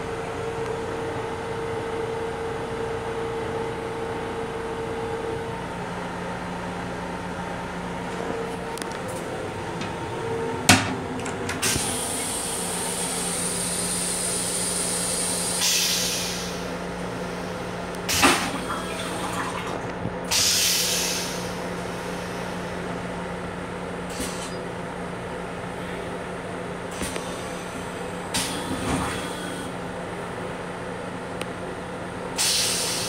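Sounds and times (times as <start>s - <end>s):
train low hum: 0.0s - 33.0s
toilet flushing with hiss: 11.6s - 22.7s, 28.3s - 29.8s, 32.4s - 33.0s.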